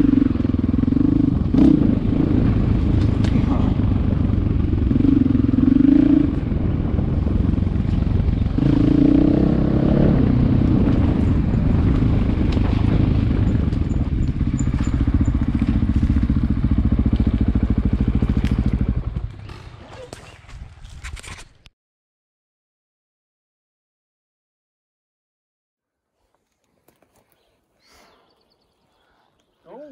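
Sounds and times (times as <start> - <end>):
engine running: 0.0 - 20.2.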